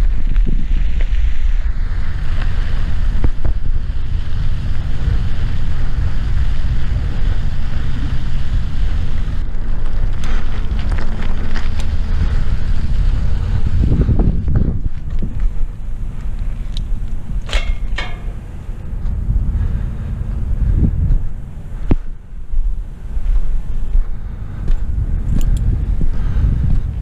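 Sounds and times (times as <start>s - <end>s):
tyres rolling over gravel: 0.0s - 20.5s
bike clicking and rattling: 0.0s - 27.0s
wind buffeting microphone: 0.0s - 27.0s.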